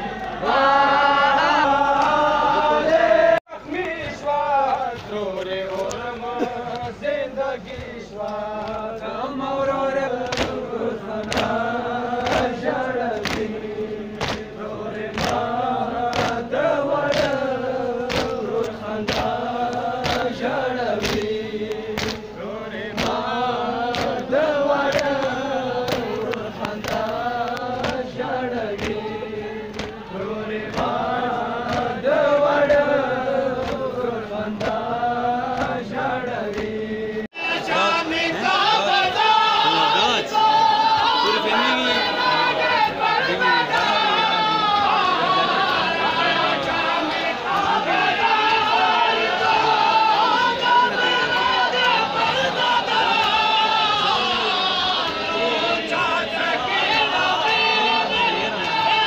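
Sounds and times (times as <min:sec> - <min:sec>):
men chanting in unison: 0:00.0 - 0:59.0
chest-beating slaps: 0:14.2 - 0:14.5, 0:18.1 - 0:20.4, 0:21.0 - 0:22.2.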